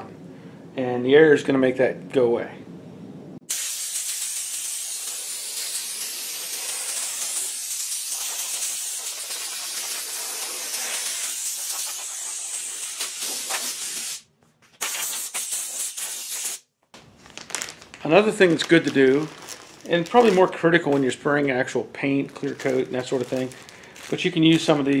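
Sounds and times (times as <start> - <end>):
compressed air hissing from hose: 3.5 - 14.2, 14.8 - 16.6.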